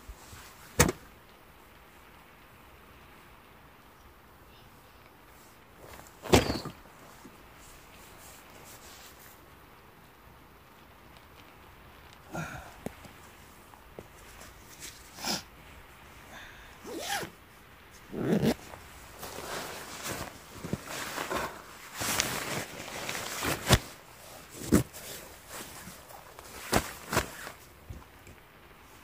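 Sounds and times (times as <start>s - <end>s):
fabric rustling: 5.3s - 9.5s, 12.0s - 29.0s
straps pulled through buckles: 5.8s - 6.9s, 16.8s - 17.4s, 18.0s - 28.1s.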